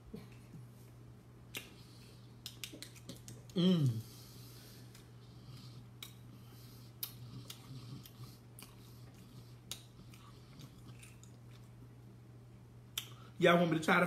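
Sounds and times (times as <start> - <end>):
steady low hum: 0.0 - 14.0
faint chewing: 1.5 - 12.2.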